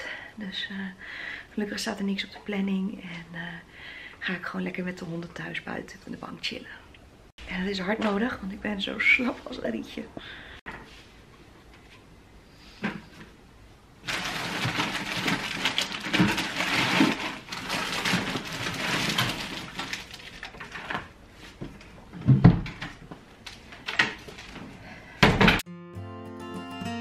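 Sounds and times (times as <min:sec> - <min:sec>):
rustling in a cupboard: 0:14.0 - 0:25.0.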